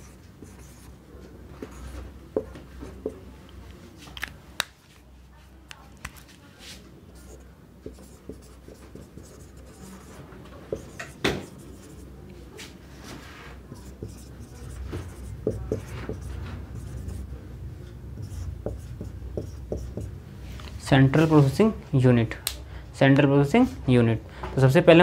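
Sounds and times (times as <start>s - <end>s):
marker writing on whiteboard: 0.0s - 3.2s, 6.6s - 20.2s
marker tapping on whiteboard: 1.6s - 3.2s, 7.8s - 10.1s, 10.7s - 12.0s, 13.8s - 17.2s, 18.2s - 20.2s.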